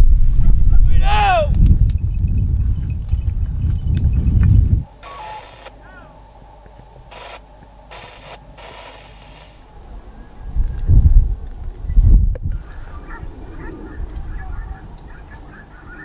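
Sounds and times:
wind rumbling on microphone: 0:00.0 - 0:04.9, 0:09.6 - 0:16.0
two-way radio static bursts: 0:04.8 - 0:10.5, 0:11.8 - 0:16.0.

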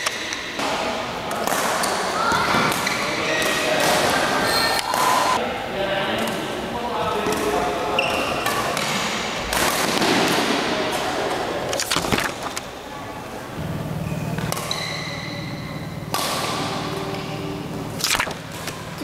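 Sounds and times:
rackets striking shuttlecock: 0:14.3 - 0:19.0.

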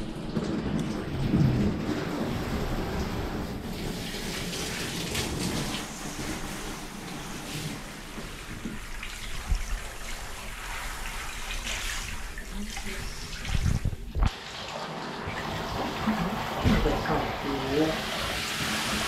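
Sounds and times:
shower spraying water: 0:00.0 - 0:19.0.

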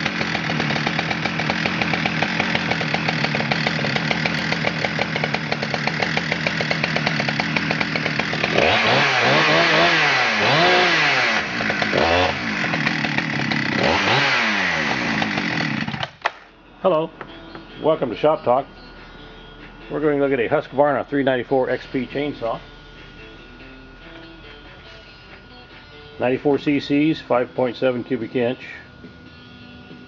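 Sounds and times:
chainsaw revving: 0:00.0 - 0:16.4
chainsaw idling: 0:00.0 - 0:30.0.

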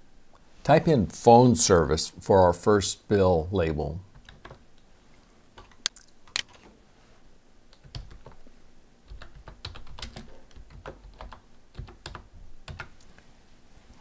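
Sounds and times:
keyboard typing: 0:04.1 - 0:04.6, 0:07.7 - 0:08.4, 0:09.1 - 0:13.0.

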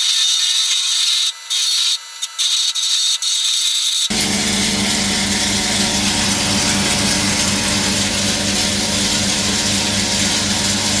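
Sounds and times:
wood chipper running: 0:04.1 - 0:11.0.

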